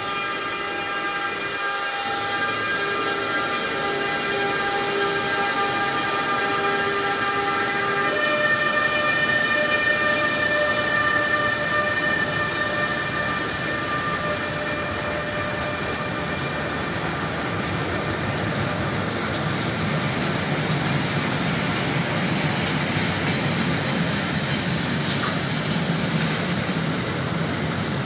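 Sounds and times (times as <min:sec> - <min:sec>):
locomotive whining tones: 0:00.0 - 0:27.8
train rolling past: 0:00.0 - 0:28.0.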